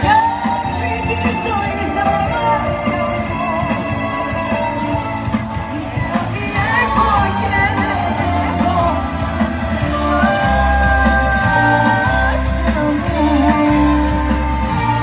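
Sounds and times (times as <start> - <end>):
woman singing: 0.0 - 5.1, 5.7 - 9.2
pop band playing through loudspeakers: 0.0 - 15.0.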